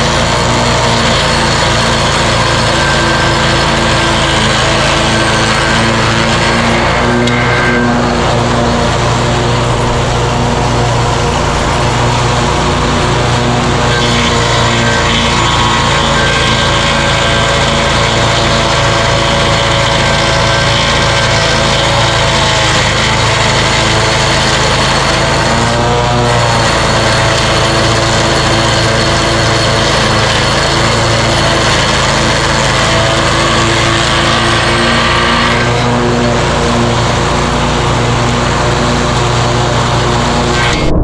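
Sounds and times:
blades grinding a stump: 0:00.0 - 0:41.0
mower engine running: 0:00.0 - 0:41.0.

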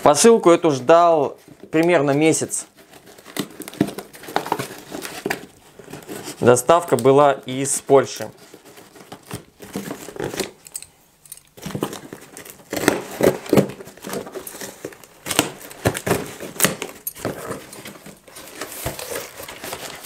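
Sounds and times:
cardboard flaps scraping: 0:11.6 - 0:20.0
packing tape ripping: 0:11.6 - 0:20.0.

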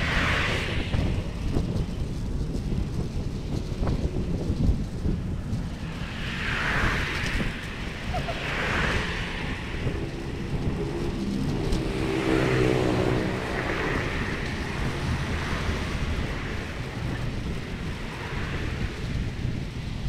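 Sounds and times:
wind rumbling on microphone: 0:00.0 - 0:20.0
low humming drone: 0:07.4 - 0:18.2.

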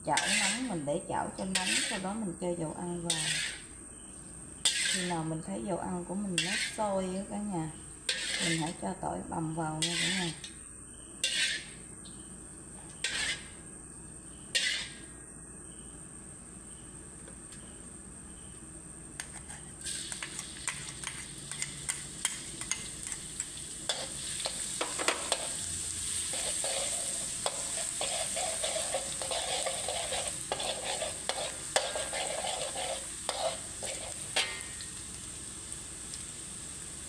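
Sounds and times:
garlic sizzling in hot oil: 0:00.0 - 0:04.0, 0:04.6 - 0:10.5, 0:11.2 - 0:11.8, 0:13.0 - 0:13.6, 0:14.6 - 0:15.0, 0:19.8 - 0:37.0
metal spatula scraping a wok: 0:00.1 - 0:02.2, 0:03.0 - 0:03.7, 0:04.6 - 0:05.4, 0:06.3 - 0:07.0, 0:08.1 - 0:08.8, 0:09.7 - 0:10.6, 0:11.2 - 0:11.9, 0:12.9 - 0:13.6, 0:14.5 - 0:15.1, 0:19.2 - 0:34.9.

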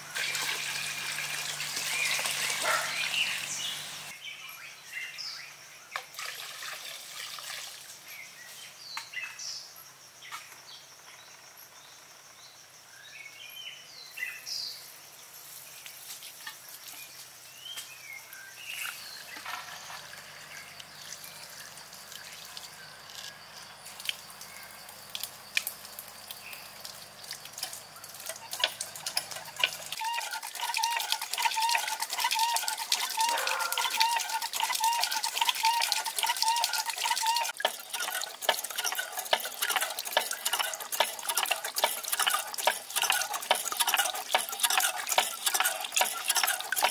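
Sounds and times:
water splashing onto water wheel: 0:00.0 - 0:04.2, 0:06.0 - 0:08.1, 0:18.8 - 0:46.9
water trickling from a pipe: 0:00.0 - 0:04.2, 0:06.0 - 0:08.2, 0:18.7 - 0:46.9.

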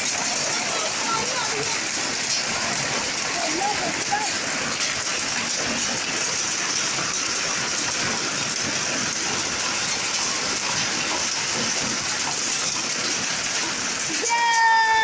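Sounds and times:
heavy rain falling: 0:00.0 - 0:15.0.

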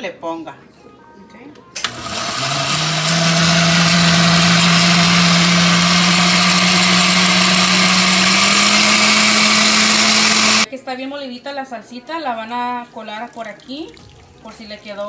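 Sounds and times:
blender motor running: 0:01.8 - 0:10.7.

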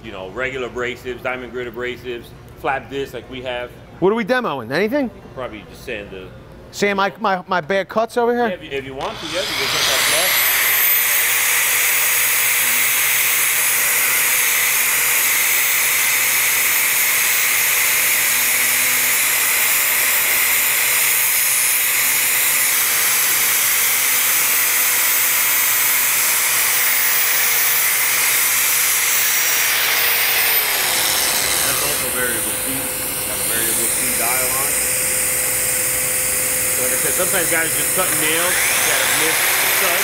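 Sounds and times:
angle grinder sanding wood: 0:09.0 - 0:40.0.

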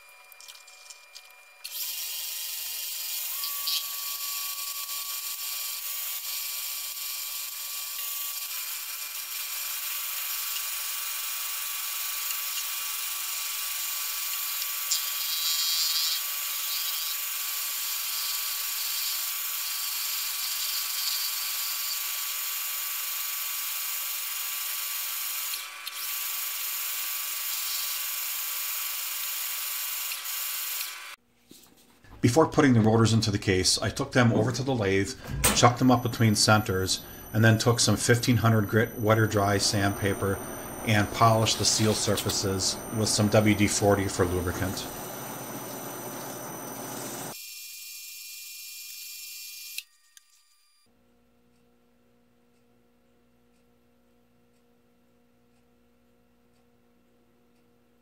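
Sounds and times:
steady machine tones: 0:34.0 - 0:47.4
metal lathe cutting aluminium: 0:35.5 - 0:47.4.

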